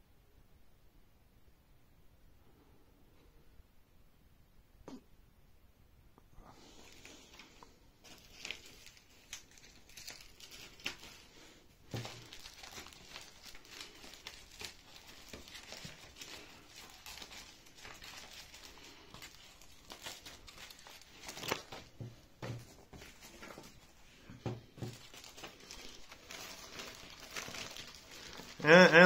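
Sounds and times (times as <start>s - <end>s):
rustling and crinkling: 6.4s - 29.0s.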